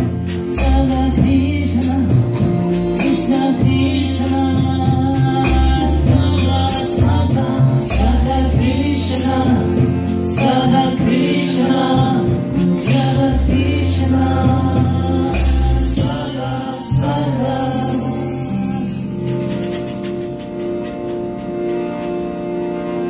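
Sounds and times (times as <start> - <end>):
deep held bass notes: 0.0 - 23.0
steady instrumental tones: 0.0 - 23.0
group singing a chant: 3.0 - 19.1.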